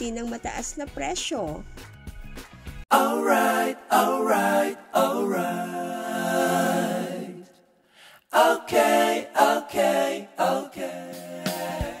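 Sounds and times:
unaccompanied singing voices: 0:02.9 - 0:07.6, 0:08.3 - 0:12.0.

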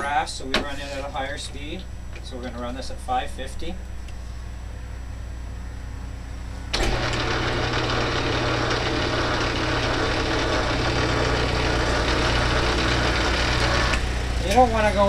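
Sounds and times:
metal lathe motor hum: 0:06.7 - 0:15.0.

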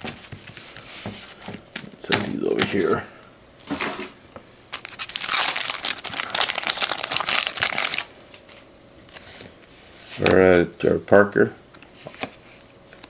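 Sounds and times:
packaging crinkling: 0:04.7 - 0:08.1.

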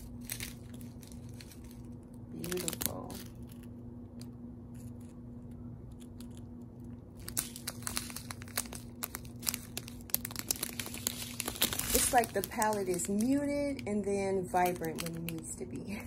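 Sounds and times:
plastic bags crinkling: 0:00.0 - 0:03.7, 0:07.1 - 0:16.0.

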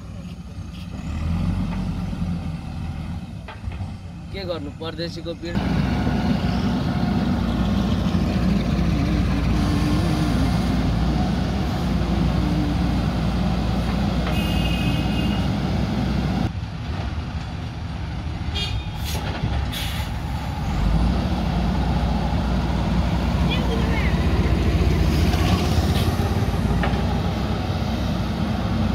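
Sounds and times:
diesel engine running under load: 0:05.4 - 0:16.6, 0:19.0 - 0:28.9.

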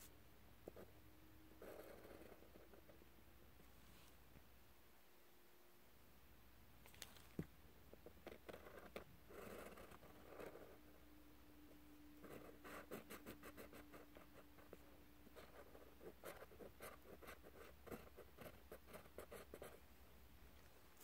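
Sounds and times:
faint steady hum: 0:00.0 - 0:21.0
pencil scratching on paper: 0:01.6 - 0:03.0, 0:08.0 - 0:10.8, 0:12.2 - 0:19.8.

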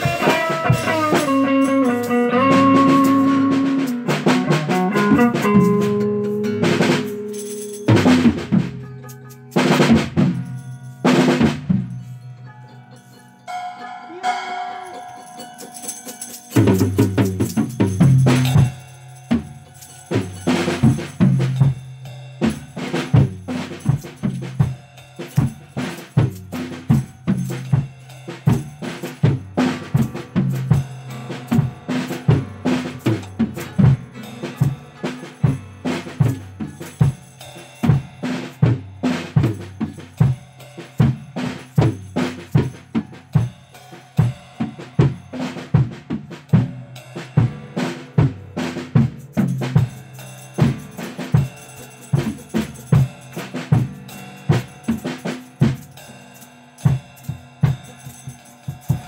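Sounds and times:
drum kit beat: 0:00.0 - 0:59.0.

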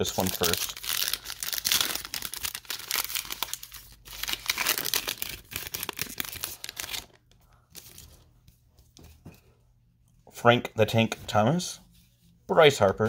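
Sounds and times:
plastic wrapper crinkling and tearing: 0:00.0 - 0:08.1.

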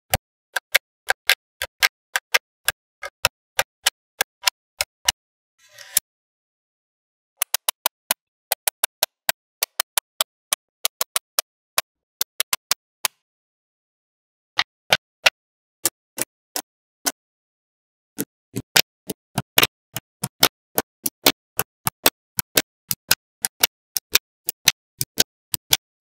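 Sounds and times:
magnetic balls clicking together: 0:18.2 - 0:25.8.

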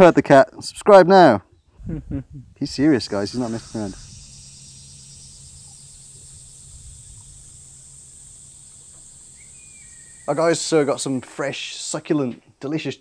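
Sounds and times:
faint low hum: 0:01.8 - 0:11.3
cicadas chorus: 0:02.6 - 0:12.0
short rising chirp: 0:03.2 - 0:10.8.

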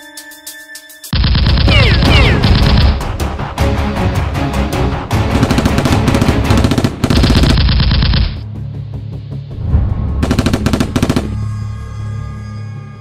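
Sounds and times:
background music: 0:00.0 - 0:13.0
automatic gunfire bursts: 0:05.3 - 0:08.4.

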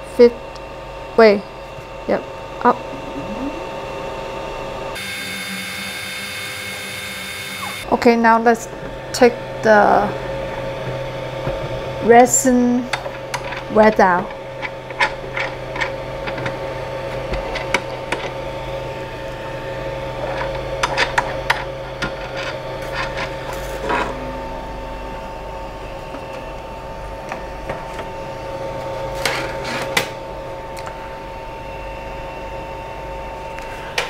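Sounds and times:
steady machine hum with tones: 0:00.0 - 0:34.0.

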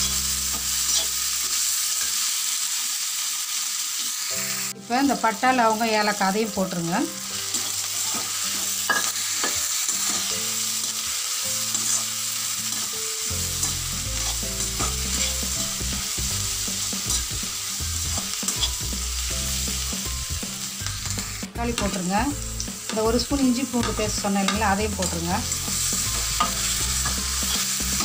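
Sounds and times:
onions sizzling in hot oil: 0:00.0 - 0:28.0
metal spatula scraping pan: 0:00.1 - 0:01.2, 0:07.4 - 0:11.0, 0:11.7 - 0:12.9, 0:13.5 - 0:15.6, 0:18.1 - 0:18.8.

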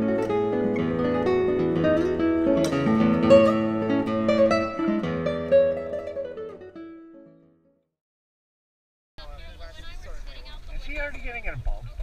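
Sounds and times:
acoustic guitar music: 0:00.0 - 0:07.8.

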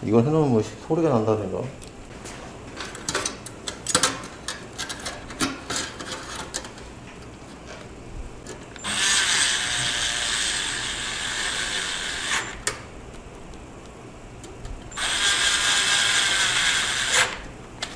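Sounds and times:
electric screwdriver running: 0:08.8 - 0:12.6, 0:15.0 - 0:17.4.

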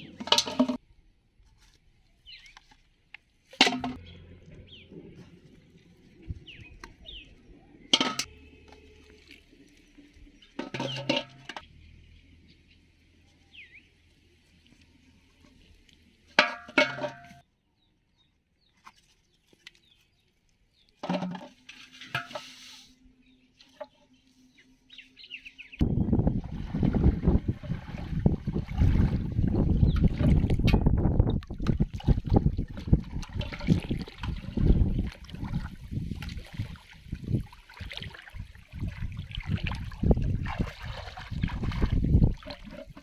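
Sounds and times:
plastic bottles dropped into pot: 0:00.0 - 0:00.8, 0:03.5 - 0:04.0, 0:10.6 - 0:11.6, 0:16.4 - 0:17.4, 0:21.0 - 0:22.6.

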